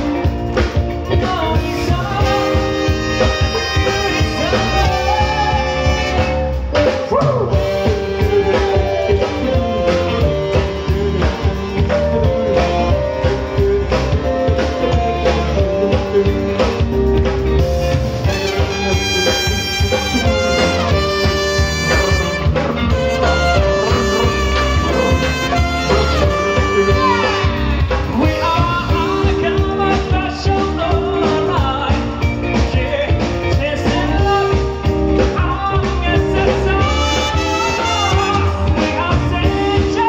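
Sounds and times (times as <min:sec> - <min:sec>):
drums: 0:00.0 - 0:40.0
electric bass: 0:00.0 - 0:40.0
keyboard: 0:00.0 - 0:40.0
man singing: 0:00.0 - 0:40.0
saxophone: 0:02.2 - 0:14.4, 0:17.8 - 0:28.1, 0:36.7 - 0:38.9.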